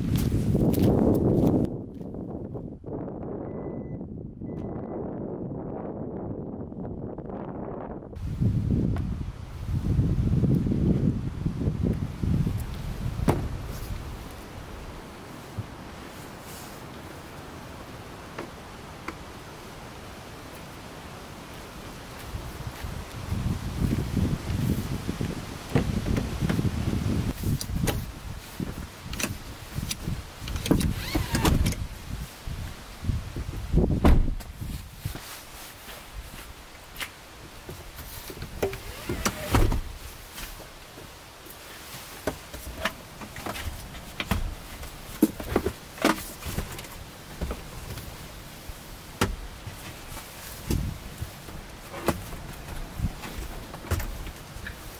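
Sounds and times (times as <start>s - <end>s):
wind on microphone: 0.0s - 16.7s, 22.0s - 36.6s, 42.6s - 54.9s
car seat latch clicks and clunks: 13.2s - 13.6s
knocks and rustles of handling: 34.2s - 48.2s.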